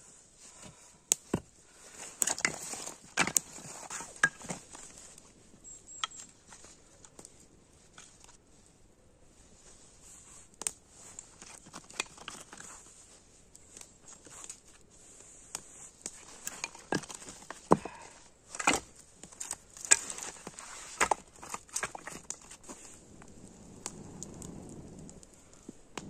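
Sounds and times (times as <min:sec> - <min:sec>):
kindling sticks knocking together: 0:02.2 - 0:05.0.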